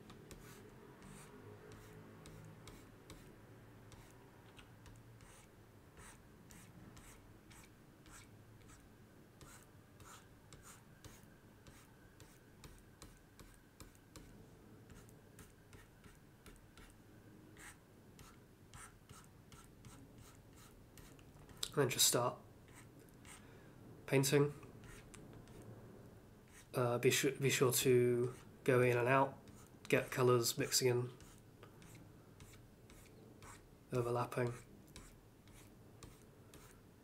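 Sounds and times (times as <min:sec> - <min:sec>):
stylus scratching on graphics tablet: 0:00.0 - 0:03.3, 0:03.9 - 0:04.2, 0:04.8 - 0:08.8, 0:09.4 - 0:14.3, 0:14.9 - 0:17.0, 0:17.6 - 0:21.6, 0:22.7 - 0:23.4, 0:24.8 - 0:25.6, 0:26.5 - 0:26.7, 0:28.2 - 0:28.5, 0:31.1 - 0:33.6, 0:34.4 - 0:36.8
faint steady hum: 0:00.0 - 0:37.0.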